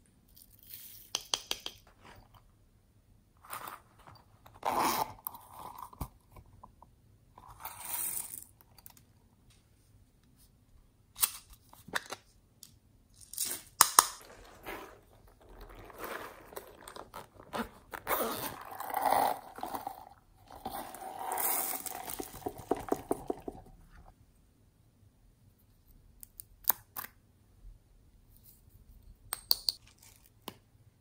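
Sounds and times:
crunchy crackling handling noise: 13.2 - 24.1.

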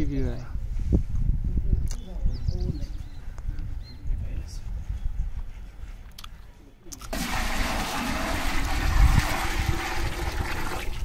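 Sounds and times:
water splashing onto cement: 7.1 - 11.0.

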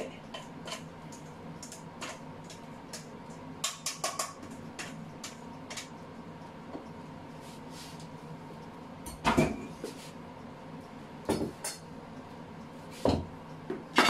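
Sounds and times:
faint steady hum: 0.0 - 14.0
utensils clattering against bowl: 0.3 - 5.9.

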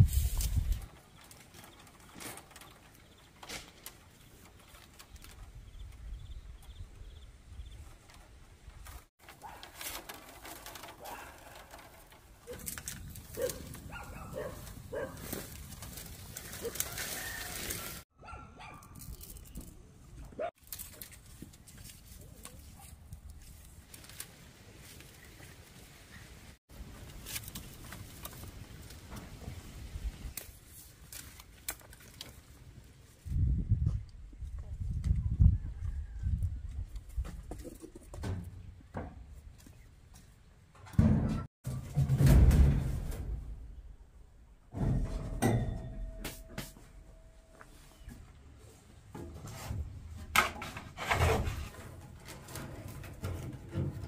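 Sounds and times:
rustling: 7.9 - 18.0.

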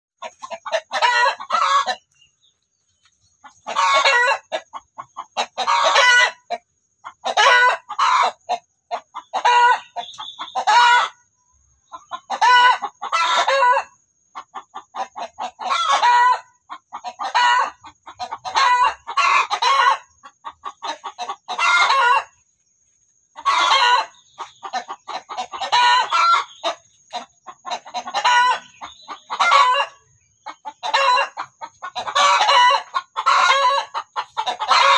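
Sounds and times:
chickens calling: 0.2 - 34.9
rooster calling: 23.4 - 26.7, 32.0 - 34.9.

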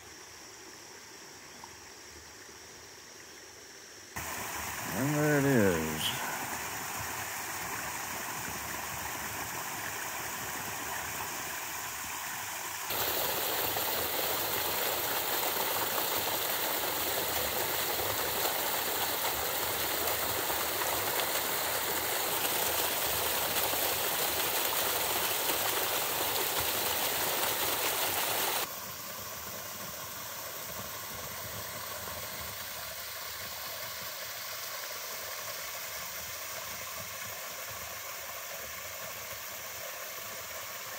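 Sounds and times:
creek water running over rock: 4.2 - 40.9
small waterfall trickling: 4.2 - 40.9
water rushing through rock chute: 12.9 - 28.7.

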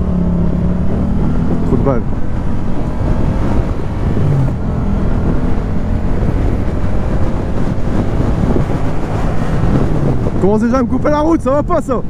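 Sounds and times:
motorcycle engine cruising: 0.0 - 12.0
wind rushing over microphone: 0.0 - 12.0.

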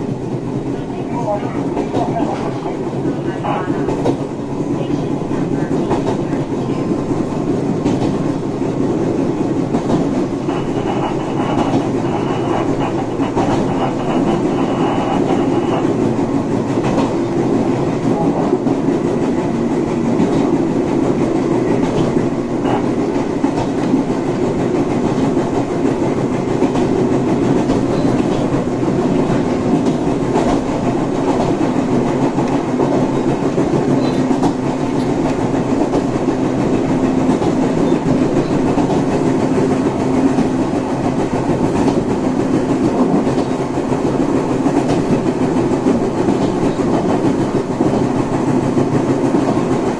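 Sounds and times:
wheels rumbling on rails: 0.0 - 49.9
track clicks: 9.7 - 19.3
traction motors humming: 9.9 - 41.2.

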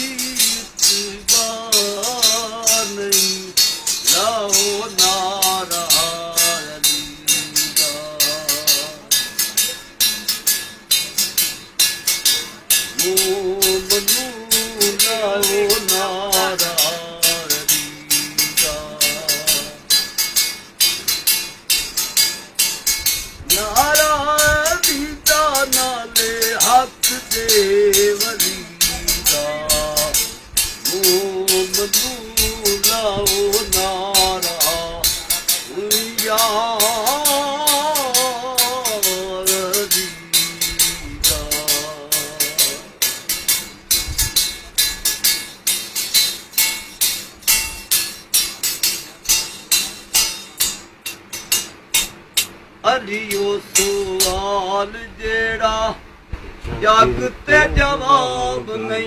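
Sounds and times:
man singing a chant: 0.0 - 9.3, 12.9 - 20.0, 23.5 - 43.1, 52.8 - 59.0
metal tongs jingling beat: 0.0 - 54.9.

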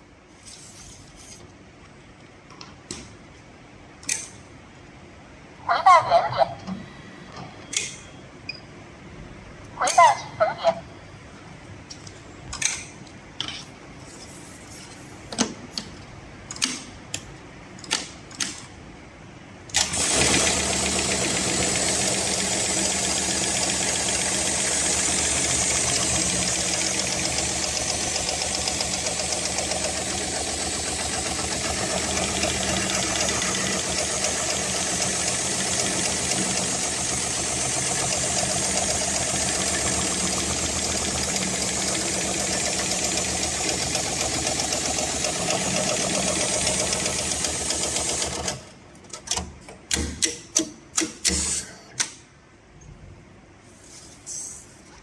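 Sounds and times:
sewing machine stitching clatter: 19.8 - 48.7.

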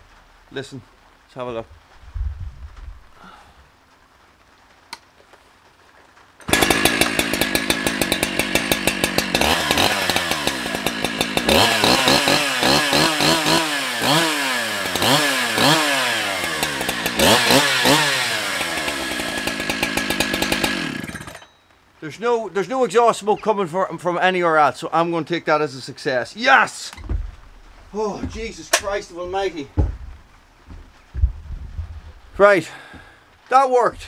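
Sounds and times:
chainsaw engine idling and revving: 6.4 - 21.5.

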